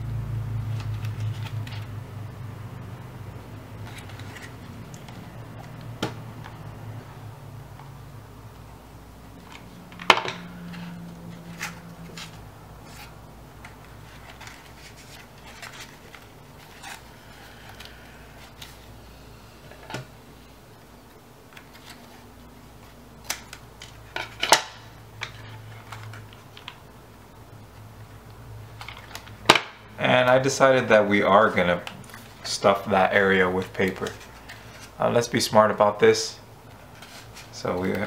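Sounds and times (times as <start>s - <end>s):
paper and cardboard rustling: 0.7s - 1.9s, 3.8s - 6.6s, 9.4s - 19.0s, 21.5s - 26.8s, 31.3s - 35.2s, 36.8s - 38.0s.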